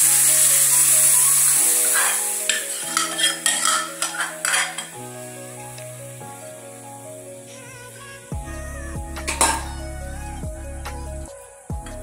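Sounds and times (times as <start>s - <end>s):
oil sizzling in a pan: 0.0s - 5.0s
ladle scraping metal pot: 2.0s - 5.0s.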